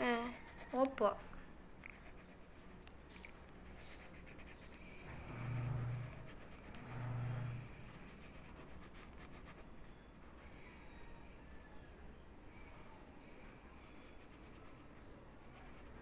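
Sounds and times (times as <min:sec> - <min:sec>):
pencil scratching on paper: 0:00.1 - 0:01.0, 0:01.9 - 0:02.8, 0:03.7 - 0:09.9, 0:13.8 - 0:16.0
brief low hums: 0:04.8 - 0:08.1
high-pitched whine: 0:05.0 - 0:08.2.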